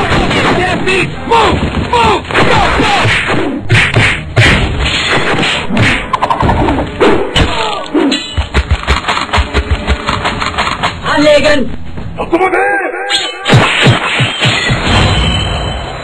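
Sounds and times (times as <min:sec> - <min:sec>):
cartoon blows and impacts: 0:13.1 - 0:16.0.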